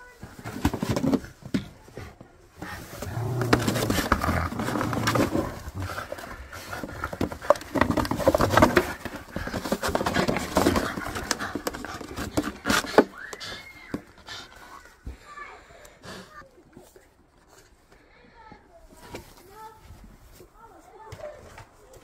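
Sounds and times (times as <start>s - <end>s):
dog biting plastic jug: 3.0s - 14.2s.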